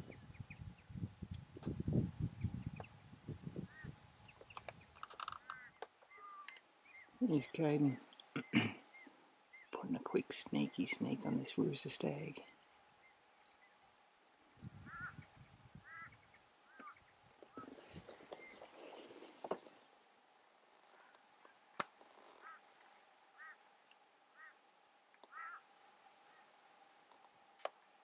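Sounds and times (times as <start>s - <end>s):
insects chirping in pulses: 0.1s - 28.0s
lower chirping calls: 3.7s - 13.9s, 14.5s - 19.5s.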